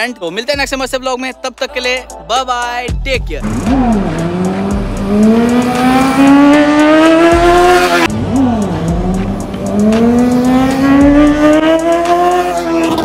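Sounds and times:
motorcycle engine revving: 3.4s - 13.0s.

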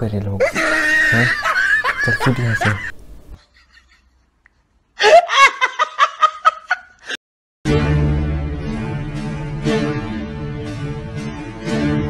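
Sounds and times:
man laughing hard: 0.4s - 4.3s, 5.0s - 7.1s.

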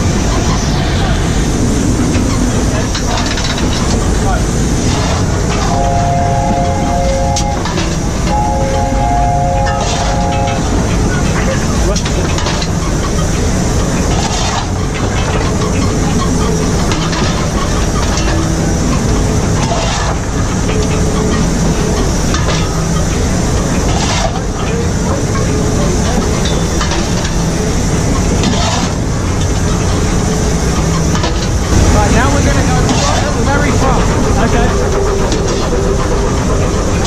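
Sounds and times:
steam hissing: 0.0s - 37.0s
steam locomotive rumble: 0.0s - 37.0s
shovel scraping coal: 28.5s - 29.0s.

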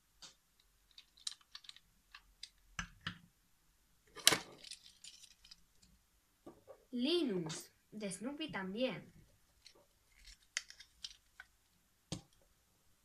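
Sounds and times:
plastic toys clicking and tapping: 0.2s - 3.2s.

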